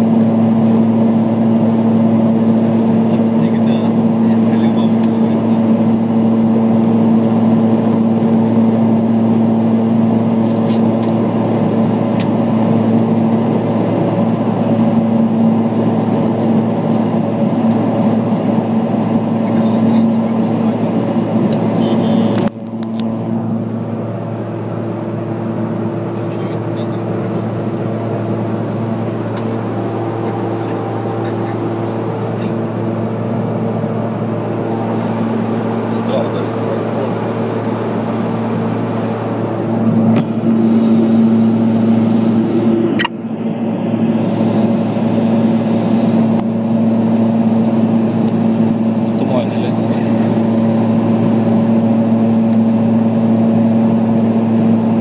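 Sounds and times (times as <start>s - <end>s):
aircraft engine drone: 0.0s - 55.0s
jet cabin hum: 0.0s - 55.0s
rushing air noise: 27.2s - 44.2s.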